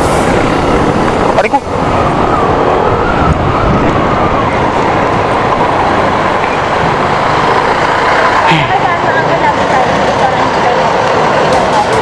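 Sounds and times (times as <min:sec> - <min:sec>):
rushing wind and road noise: 0:00.0 - 0:12.0.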